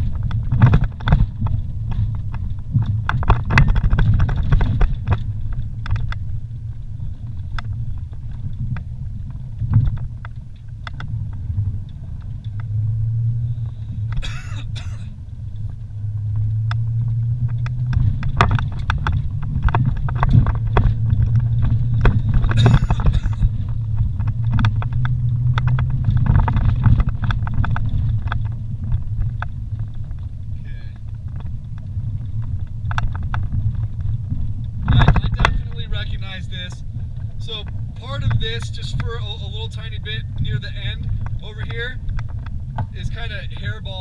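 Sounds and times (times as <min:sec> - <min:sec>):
vehicle engine droning: 0:00.0 - 0:44.0.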